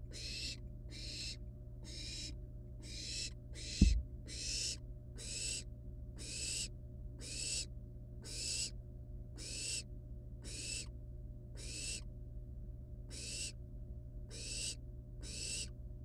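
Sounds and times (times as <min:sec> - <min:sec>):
steady low hum: 0:00.0 - 0:16.0
owl nestlings hissing begging calls: 0:00.1 - 0:08.7, 0:09.4 - 0:10.9, 0:11.6 - 0:12.0, 0:13.1 - 0:13.6, 0:14.3 - 0:15.7.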